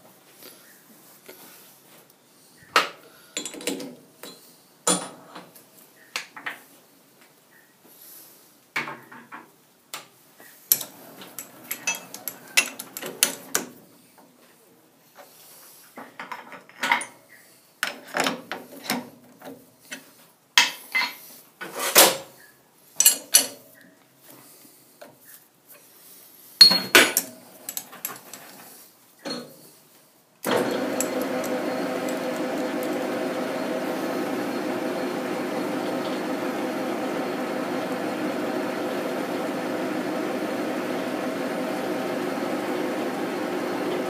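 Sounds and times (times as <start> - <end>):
metal tools clinking and clanking: 10.7 - 13.4.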